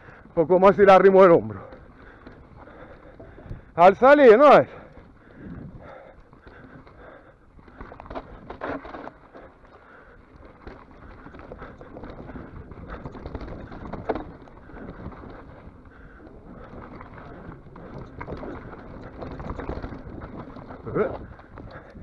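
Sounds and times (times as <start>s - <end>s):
mountain bike rattling over trail: 0.0s - 22.0s
wind on microphone: 5.3s - 6.0s, 11.1s - 22.0s.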